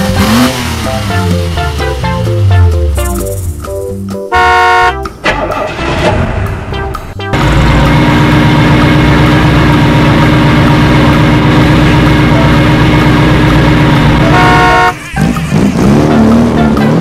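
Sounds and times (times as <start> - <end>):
vehicle drone: 0.0 - 17.0
short horn toot: 4.3 - 5.0, 14.3 - 15.0.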